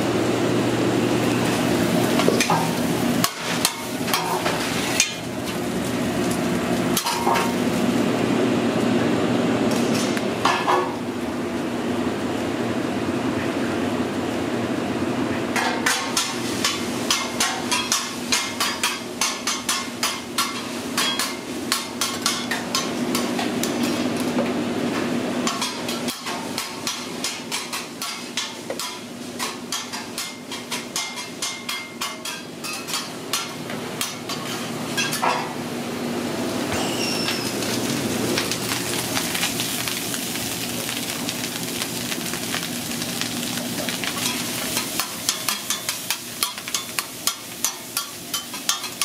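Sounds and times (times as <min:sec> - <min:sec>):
kitchen ventilation hum: 0:00.0 - 0:49.0
metal spatulas clacking on griddle: 0:25.5 - 0:34.4, 0:45.0 - 0:49.0.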